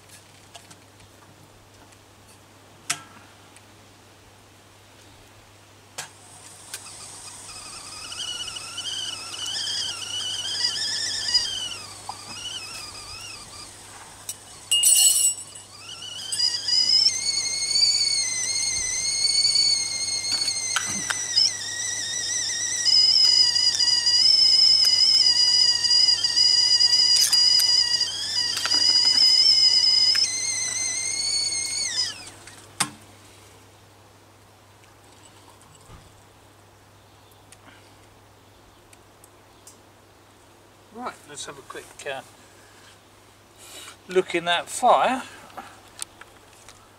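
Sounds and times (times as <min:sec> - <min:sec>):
kettle whistling: 0:06.0 - 0:32.9.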